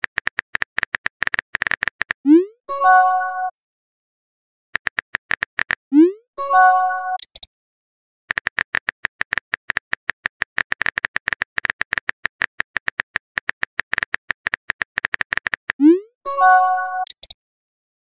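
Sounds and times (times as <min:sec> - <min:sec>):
phone keyboard typing clicks: 0:00.0 - 0:02.2, 0:04.8 - 0:05.8, 0:07.2 - 0:07.5, 0:08.3 - 0:15.8, 0:17.0 - 0:17.4
message alert chime: 0:06.0 - 0:07.2, 0:15.8 - 0:17.1.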